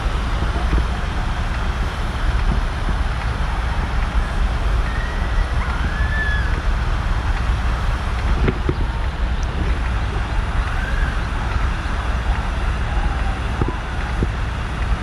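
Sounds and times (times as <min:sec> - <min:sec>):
wind rumbling on microphone: 0:00.0 - 0:15.0
faint high gliding whistles: 0:04.2 - 0:06.8.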